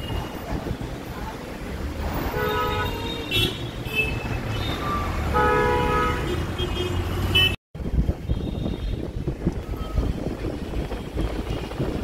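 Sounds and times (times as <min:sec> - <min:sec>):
rumble of traffic engines: 0:00.0 - 0:12.0
vehicle horns honking: 0:02.3 - 0:07.6, 0:08.3 - 0:09.2.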